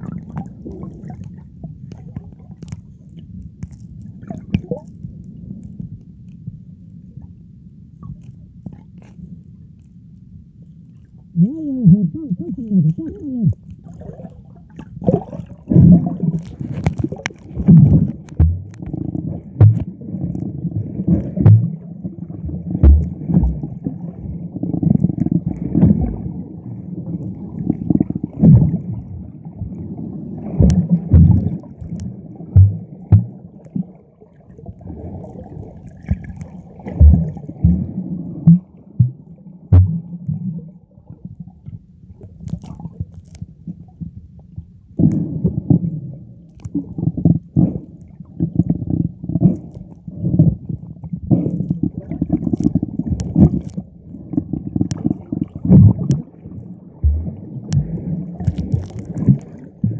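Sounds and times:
underwater churning and gurgling: 0:00.0 - 0:59.9
low underwater thumps: 0:13.0 - 0:20.0, 0:20.8 - 0:21.8, 0:22.4 - 0:23.8, 0:30.5 - 0:33.5, 0:36.1 - 0:40.6, 0:57.0 - 0:59.9.

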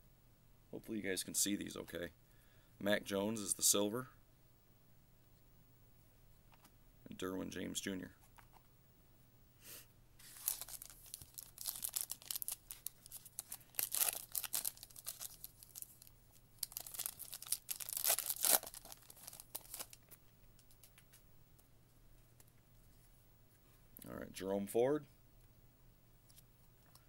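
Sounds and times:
plastic wrapper tearing and crinkling: 0:10.2 - 0:21.0.

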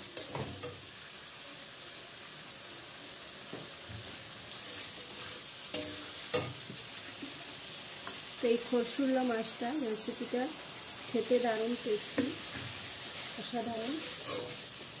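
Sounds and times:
spatula stirring in a pan: 0:00.0 - 0:01.2, 0:03.5 - 0:08.4, 0:12.0 - 0:15.0
food sizzling in a metal pan: 0:00.0 - 0:15.0
spatula striking a pan: 0:00.1 - 0:00.8, 0:05.7 - 0:06.8, 0:14.2 - 0:14.7.

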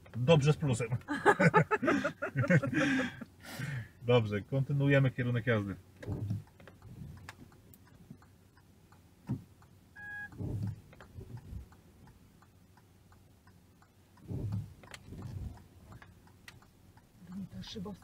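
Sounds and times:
turn signal ticking: 0:00.0 - 0:18.0
soft low thumps: 0:05.8 - 0:08.2, 0:09.2 - 0:12.4, 0:13.8 - 0:18.0
short electronic beep: 0:10.0 - 0:10.4.

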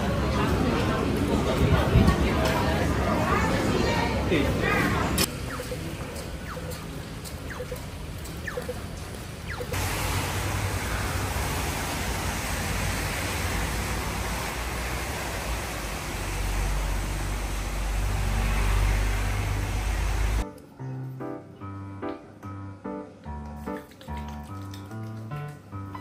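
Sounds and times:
road traffic: 0:00.0 - 0:20.5
heavy rain: 0:09.3 - 0:20.4.

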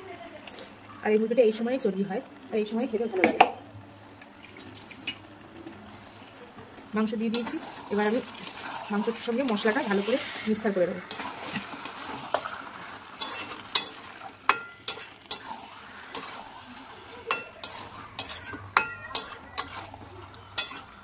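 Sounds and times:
food sizzling in oil: 0:00.0 - 0:21.0
spatula scraping and clinking pan: 0:07.3 - 0:16.5, 0:17.1 - 0:21.0.

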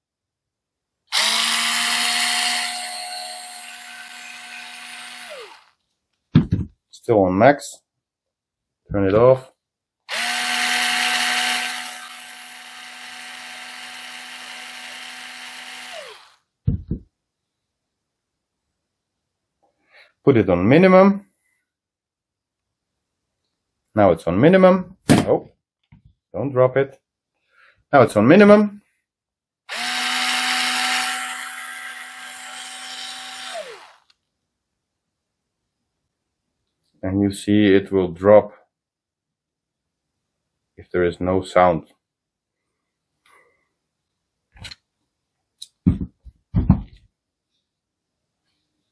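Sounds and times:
cordless screwdriver motor whine: 0:01.1 - 0:05.8, 0:10.1 - 0:16.4, 0:29.7 - 0:34.2.

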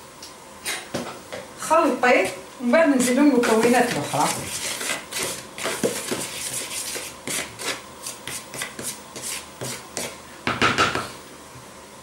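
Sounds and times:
spoon scraping dry flour in tub: 0:03.0 - 0:10.2.

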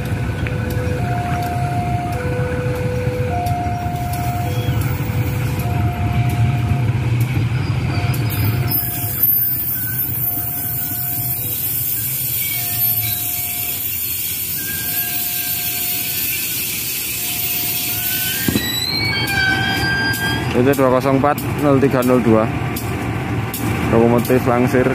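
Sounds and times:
locomotive engine drone: 0:00.0 - 0:24.9
short tone: 0:03.3 - 0:05.1.

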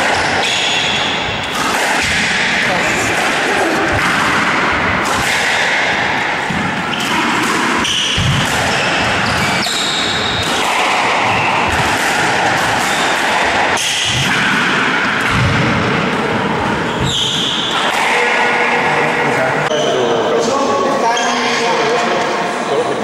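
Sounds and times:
squash ball knocking: 0:00.0 - 0:19.1
loud steady hall noise: 0:00.0 - 0:23.0
shoes squeaking on floor: 0:07.8 - 0:10.6, 0:16.7 - 0:17.7, 0:19.6 - 0:20.2.

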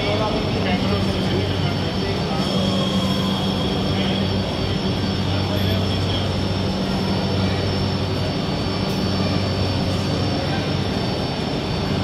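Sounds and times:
high whine: 0:00.0 - 0:12.0
station murmur: 0:00.0 - 0:12.0
train electrical hum: 0:00.0 - 0:12.0.

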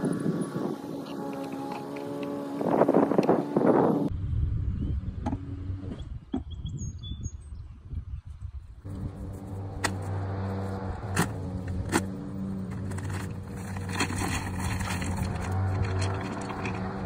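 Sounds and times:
low rumble: 0:04.1 - 0:06.4.

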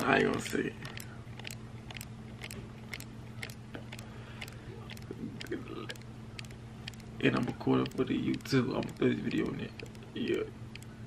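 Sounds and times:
faint sharp ticks: 0:00.0 - 0:10.9
steady low hum: 0:00.0 - 0:11.0.

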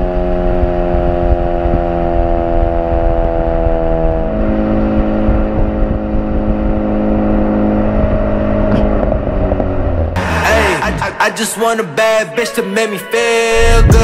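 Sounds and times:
car exhaust drone: 0:00.0 - 0:11.2.

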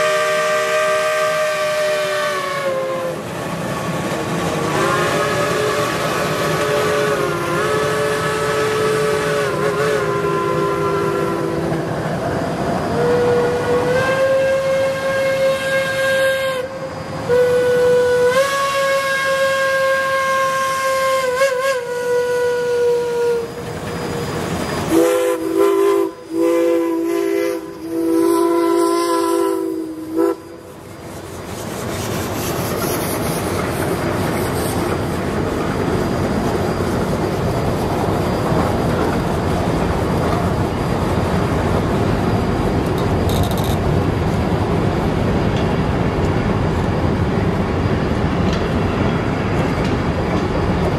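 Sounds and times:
steam locomotive whistle blast: 0:00.0 - 0:03.2, 0:04.7 - 0:11.7, 0:12.9 - 0:30.8
freight cars rolling on rails: 0:01.6 - 0:18.3, 0:20.8 - 0:50.9.

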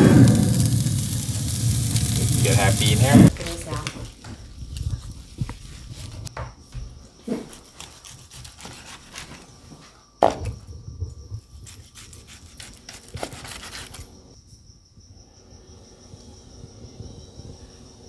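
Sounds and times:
knife slicing steak: 0:07.4 - 0:09.4.

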